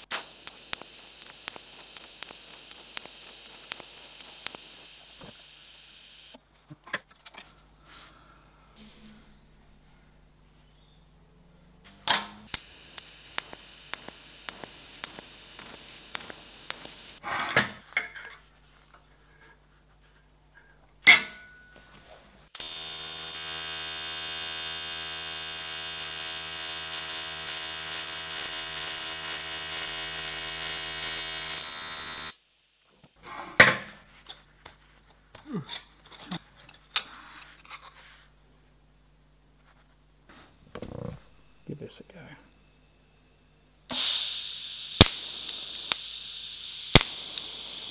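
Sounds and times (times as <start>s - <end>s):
welding arc buzzing: 0.0s - 6.4s, 11.9s - 17.2s, 22.6s - 32.4s, 43.9s - 47.9s.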